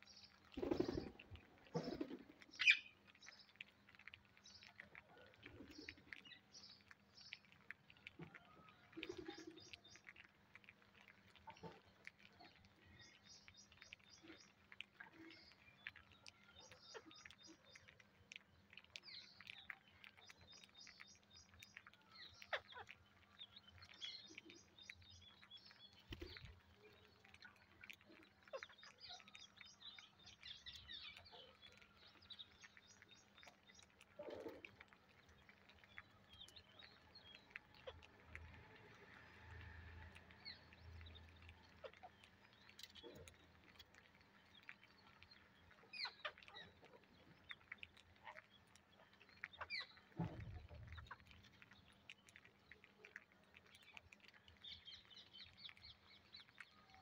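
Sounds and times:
birds pecking seeds: 0.0 - 57.0
parakeets chirping: 1.8 - 3.0, 45.7 - 46.7.

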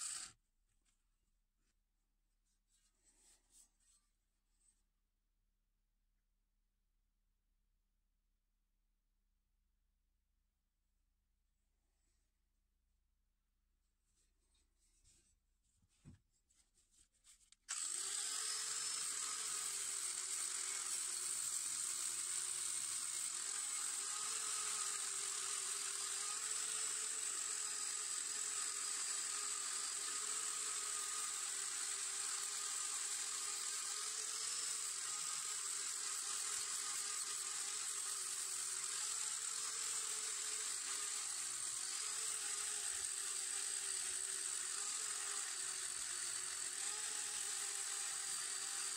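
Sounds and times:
electric sander whining: 0.0 - 0.3, 17.7 - 48.9.

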